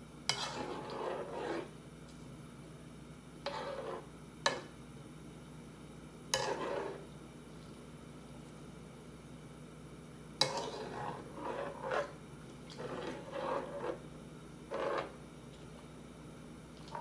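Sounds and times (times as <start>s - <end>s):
low steady hum: 0.0s - 17.0s
utensil scraping a pot: 0.3s - 1.8s, 3.4s - 4.6s, 6.3s - 7.1s, 10.4s - 14.1s, 14.7s - 15.2s.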